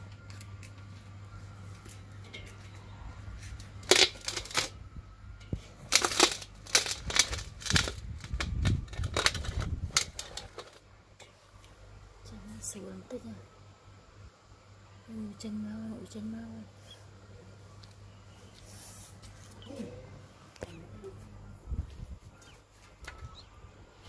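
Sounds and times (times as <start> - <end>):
steady low hum: 0.0 - 24.0
packaging rustling and crackling: 3.6 - 4.8, 5.8 - 10.9.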